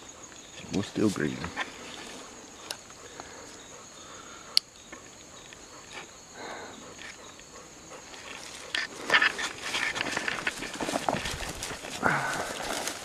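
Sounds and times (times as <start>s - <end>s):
high-pitched insect drone: 0.0s - 13.0s
rustling in dry leaves: 8.1s - 13.0s.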